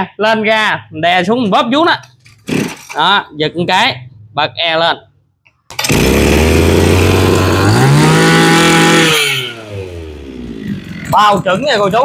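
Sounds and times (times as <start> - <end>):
recoil starter pull: 2.2 - 3.1, 5.7 - 10.0
brush cutter engine running: 2.5 - 3.0, 5.7 - 11.1.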